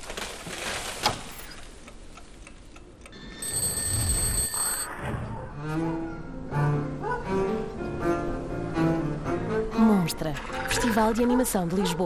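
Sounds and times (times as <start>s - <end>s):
high steady ringing: 3.2s - 4.9s.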